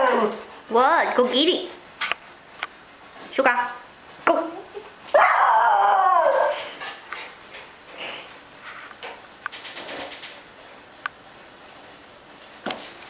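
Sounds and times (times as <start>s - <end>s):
dog howling: 0.0s - 0.5s, 5.1s - 6.8s.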